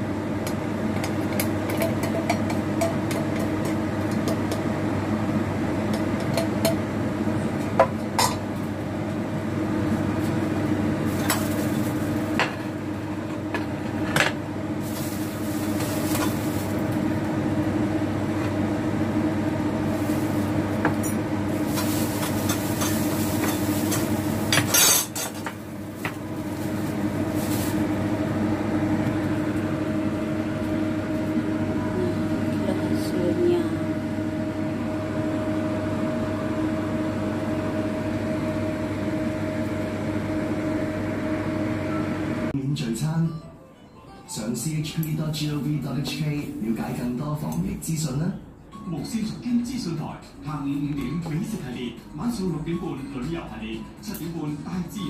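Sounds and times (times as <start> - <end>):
mechanical kitchen hum: 0.0 - 55.0
utensils clinking against pots: 20.9 - 25.6.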